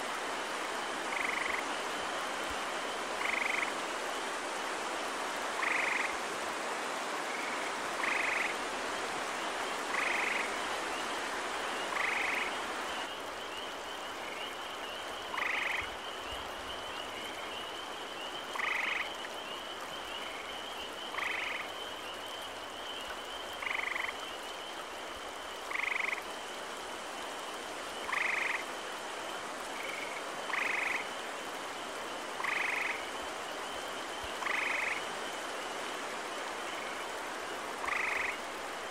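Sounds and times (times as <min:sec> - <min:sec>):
tree frogs trilling: 0:00.0 - 0:03.9, 0:05.5 - 0:06.2, 0:07.3 - 0:08.6, 0:09.4 - 0:38.9
steady background hiss: 0:00.0 - 0:38.9.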